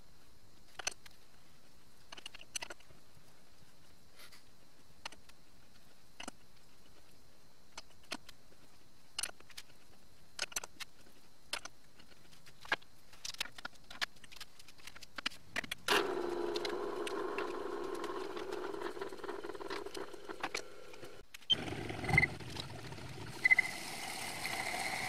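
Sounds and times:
lathe motor humming: 15.9 - 22.0, 22.9 - 25.0.

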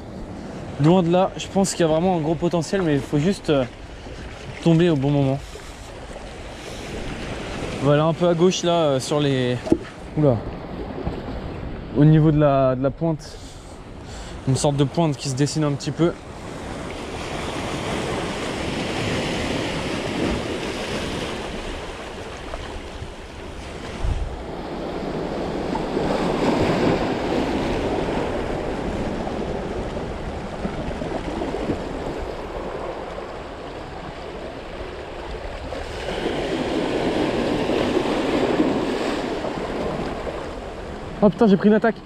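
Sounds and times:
waves washing over rocks: 0.5 - 11.4, 14.4 - 42.0
wind buffeting microphone: 16.3 - 41.2.

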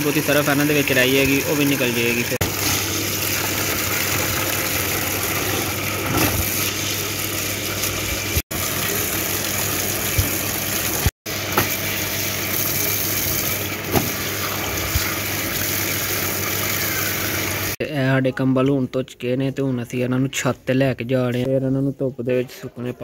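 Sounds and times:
water pouring into metal tub: 0.0 - 17.8.

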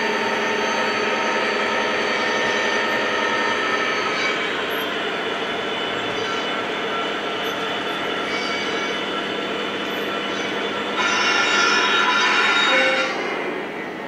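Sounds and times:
loud multi-tone horn: 5.9 - 7.1, 7.9 - 9.2, 9.9 - 13.5.

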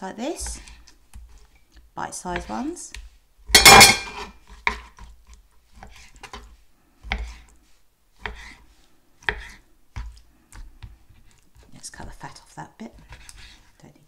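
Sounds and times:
knife slicing raw meat: 3.5 - 7.6, 8.2 - 11.7.

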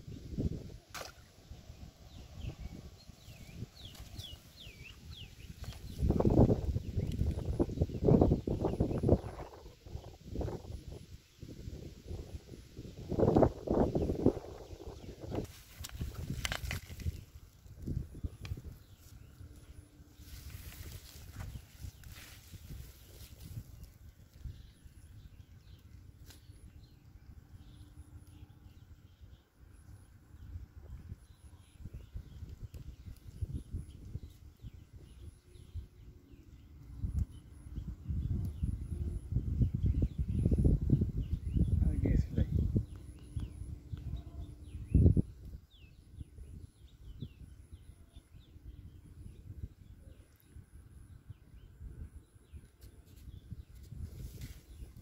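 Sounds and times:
faint bird chirps: 17.9 - 55.0.

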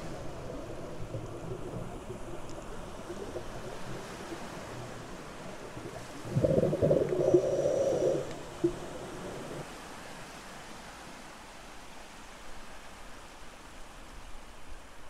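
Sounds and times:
underwater bubbling: 0.0 - 9.7
steady underwater hiss: 0.0 - 15.0.

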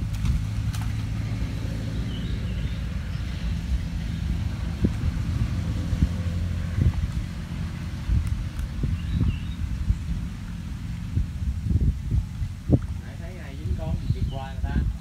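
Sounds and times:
net splashing in water: 0.0 - 2.0
low engine drone: 0.0 - 15.0.

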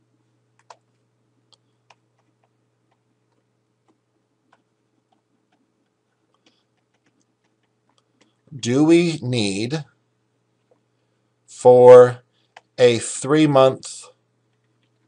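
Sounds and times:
faint low hum: 0.0 - 15.0
stylus tapping on pen tablet: 1.9 - 8.3.

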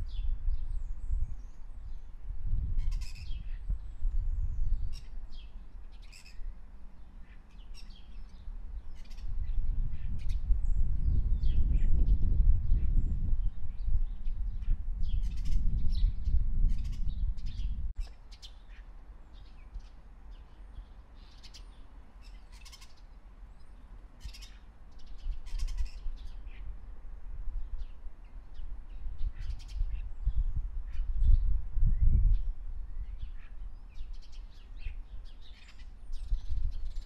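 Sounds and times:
wind rumble on microphone: 0.0 - 22.9, 23.5 - 37.0
birds chirping and calling: 2.8 - 6.5, 7.2 - 10.4, 14.2 - 20.0, 20.6 - 26.7, 28.5 - 31.4, 33.0 - 37.0.

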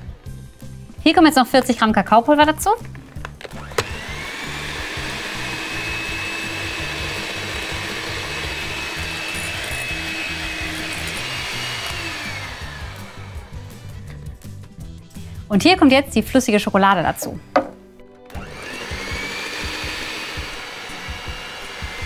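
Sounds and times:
electric hand mixer running: 3.3 - 14.4, 18.3 - 22.0.

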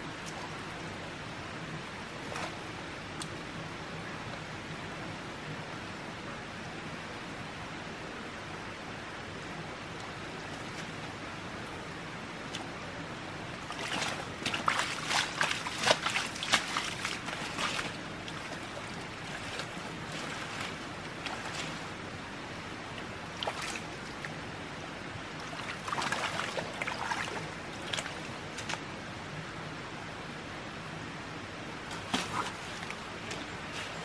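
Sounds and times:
water splashing and sloshing: 0.0 - 3.7, 9.9 - 29.4, 31.7 - 34.0.

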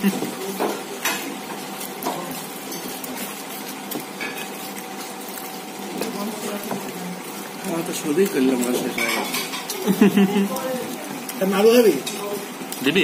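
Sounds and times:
plates and cutlery clinking: 0.0 - 4.7, 7.9 - 11.0, 11.9 - 12.4.

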